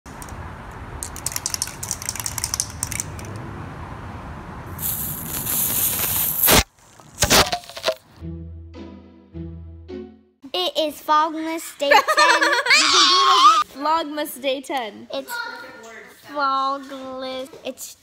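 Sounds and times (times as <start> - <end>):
spray can rattling: 1.0 - 3.4, 4.8 - 6.6
aerosol spray hiss: 4.8 - 6.6.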